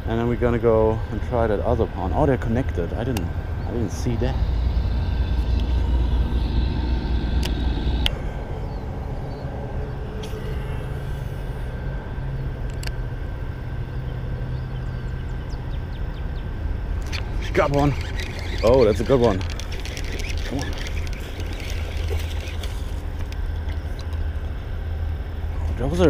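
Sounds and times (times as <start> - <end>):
highway traffic rumble: 0.0 - 26.0
sharp ticks: 17.0 - 23.4.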